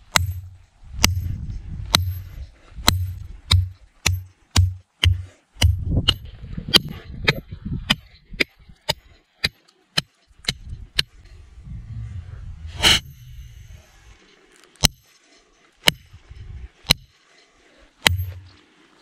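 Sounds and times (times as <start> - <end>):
ringing knife strike: 12.8 - 13.9, 18.1 - 18.5.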